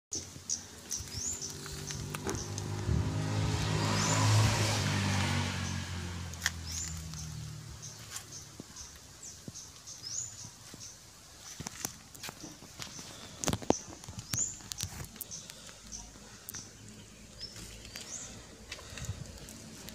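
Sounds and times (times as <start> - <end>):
bird chirping: 0.1 - 4.8, 5.6 - 19.9
motor vehicle passing: 0.6 - 9.4.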